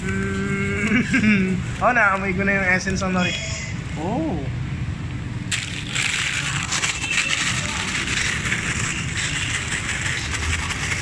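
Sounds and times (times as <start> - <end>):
paper bag of fries shaken: 5.5 - 11.0.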